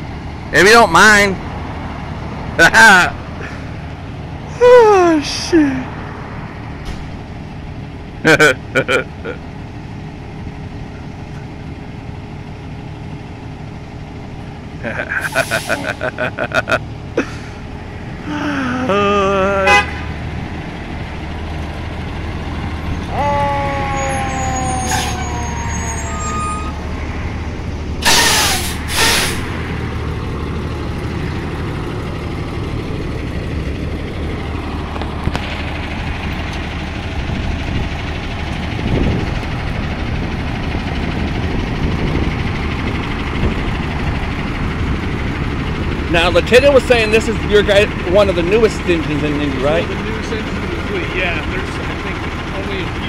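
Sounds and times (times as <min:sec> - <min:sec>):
fire engine diesel running: 0:00.0 - 0:53.0
air brake hisses: 0:15.2 - 0:16.0, 0:28.0 - 0:29.5.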